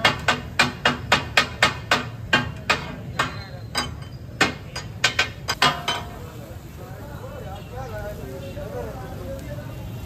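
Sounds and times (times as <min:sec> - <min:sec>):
metal spatulas clanking on griddle: 0:00.0 - 0:06.3.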